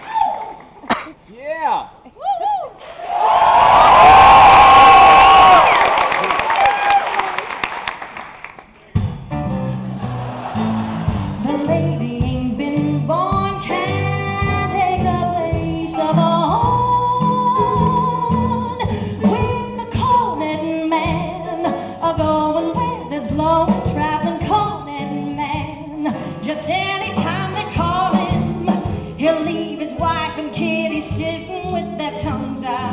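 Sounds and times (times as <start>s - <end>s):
woman singing with vibrato: 11.4s - 32.9s.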